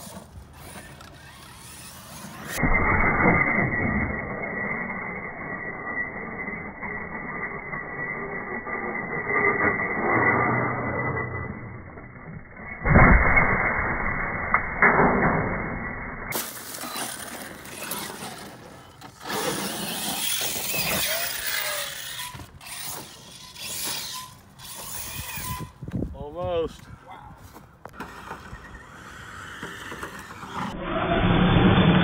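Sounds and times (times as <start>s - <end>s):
tires scrabbling over dirt: 0.0s - 10.8s, 16.3s - 26.2s, 27.5s - 32.0s
toy car crashing onto dirt: 12.6s - 25.7s.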